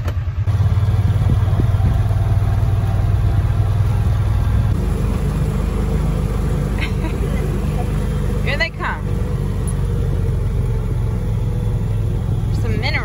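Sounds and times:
utility vehicle engine running: 0.0 - 13.0.

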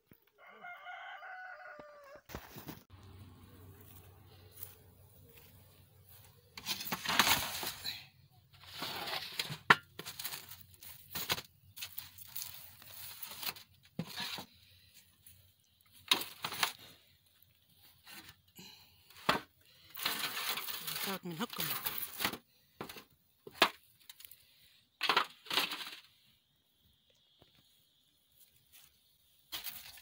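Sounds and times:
loaves scraping out of clay oven: 6.5 - 15.0, 15.9 - 24.4.

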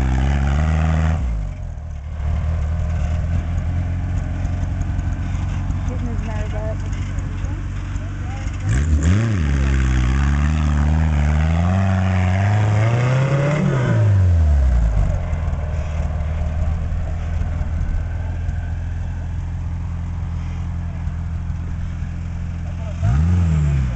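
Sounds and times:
engine revving hard: 8.5 - 15.0, 22.7 - 23.9.

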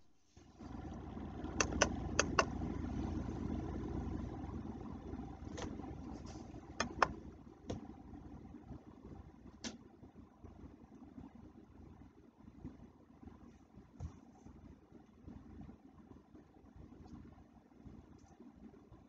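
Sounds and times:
low rumbling noise: 0.4 - 18.8
sharp clicks: 1.6 - 2.6.

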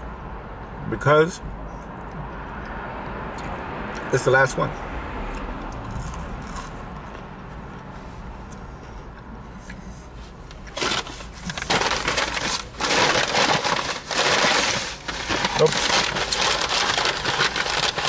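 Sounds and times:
chewing crispy food: 5.3 - 7.2
paper bag rustling: 10.7 - 18.0.

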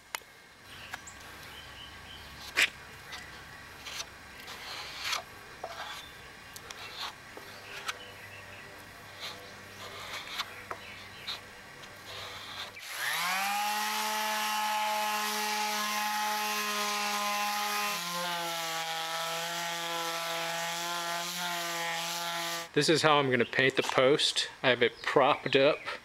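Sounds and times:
sandpaper rasping on wood: 3.8 - 6.1, 6.7 - 8.0, 9.1 - 22.7
electric palm sander whining: 12.0 - 22.7.

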